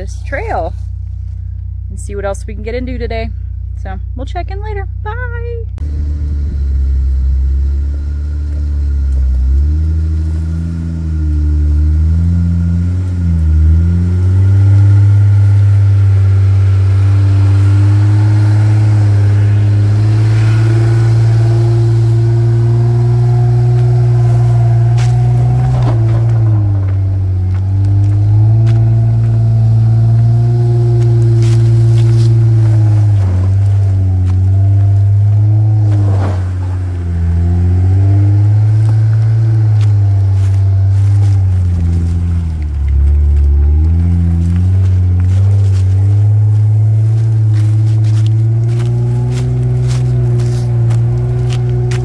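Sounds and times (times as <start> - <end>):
engine pulling at low revs: 5.7 - 52.0.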